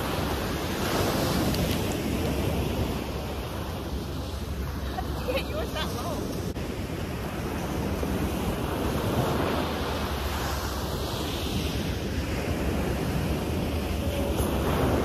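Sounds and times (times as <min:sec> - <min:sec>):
ocean surf breaking: 0:00.0 - 0:15.0
wind rumbling on microphone: 0:00.0 - 0:15.0.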